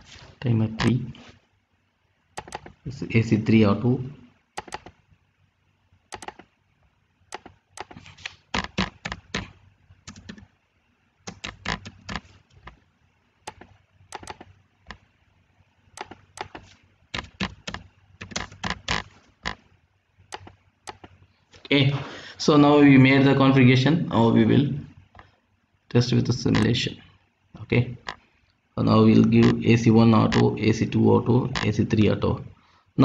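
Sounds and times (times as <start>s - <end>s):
keyboard keys clicking: 2.4s - 2.8s, 4.6s - 5.0s, 6.1s - 6.5s, 7.3s - 10.5s, 11.3s - 12.8s, 13.5s - 15.0s, 16.0s - 19.6s, 20.3s - 21.2s
mouse buttons clicking: 2.4s - 2.8s, 4.6s - 5.0s, 6.1s - 6.5s, 7.3s - 9.5s, 13.5s - 15.0s, 16.0s - 19.6s, 20.3s - 21.2s.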